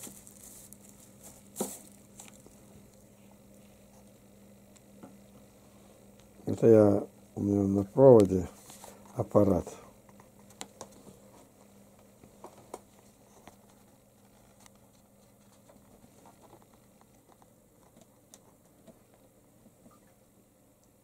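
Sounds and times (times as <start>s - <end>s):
kitten paws clicking and rustling: 10.1s - 20.0s.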